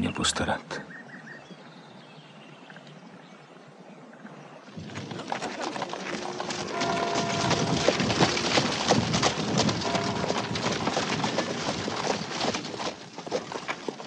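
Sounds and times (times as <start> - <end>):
horse hooves clip-clopping on dirt: 4.7 - 14.0.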